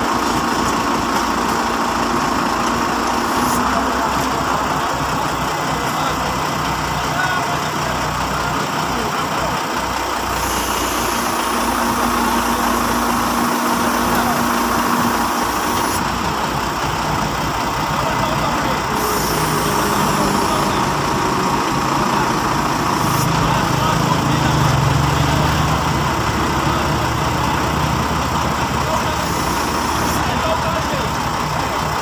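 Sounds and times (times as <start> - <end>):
truck engine running: 0.0 - 32.0.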